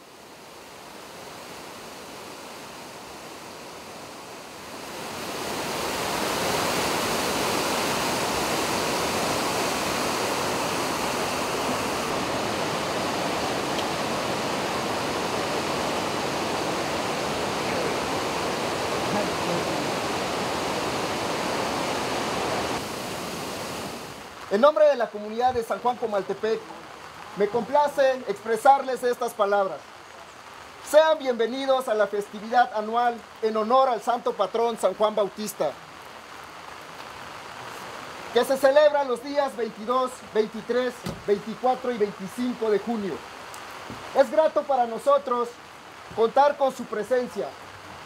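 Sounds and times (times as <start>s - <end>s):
river rapids roaring: 0.0s - 24.3s.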